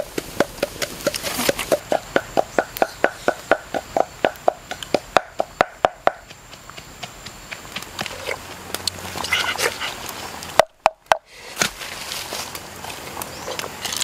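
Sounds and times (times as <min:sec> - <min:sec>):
wooden pestle knocking in mortar: 0:00.0 - 0:06.4.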